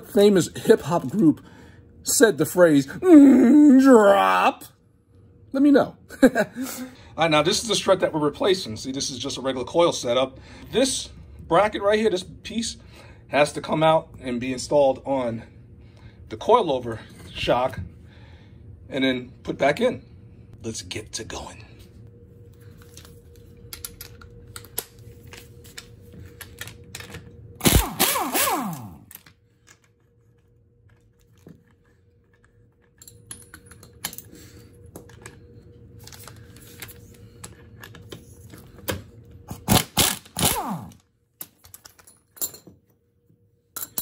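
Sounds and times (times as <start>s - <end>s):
pneumatic air ratchet running: 27.6s - 29.0s, 39.6s - 41.0s.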